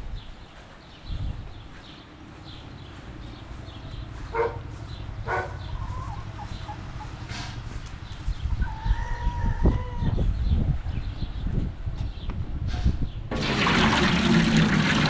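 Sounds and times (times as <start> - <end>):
chickens clucking: 4.2 - 10.3.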